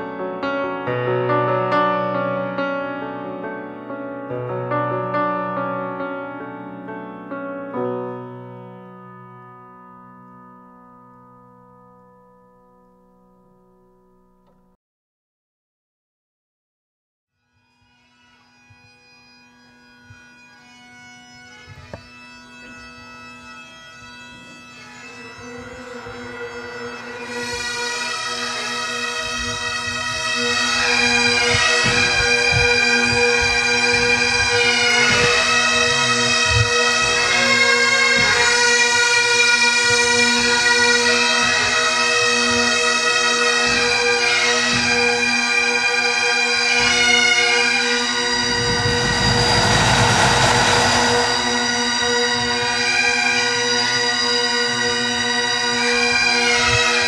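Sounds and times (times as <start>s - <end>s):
bagpipes playing a tune: 17.7s - 48.7s, 52.3s - 57.0s
rushing noise: 48.0s - 53.4s.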